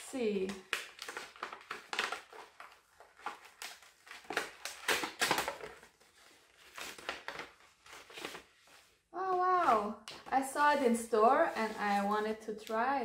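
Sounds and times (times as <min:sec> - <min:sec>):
wrapping paper crinkling and tearing: 0:00.1 - 0:09.8.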